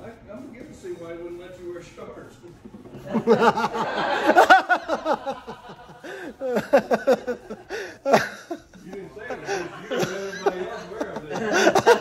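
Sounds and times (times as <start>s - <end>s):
man laughing: 3.1s - 12.0s.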